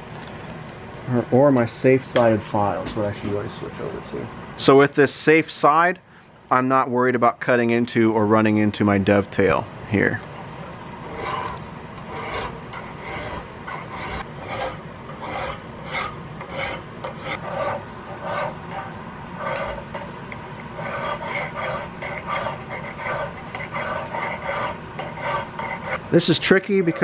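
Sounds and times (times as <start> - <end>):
file scraping on steel: 11.0 - 26.1, 26.8 - 27.0.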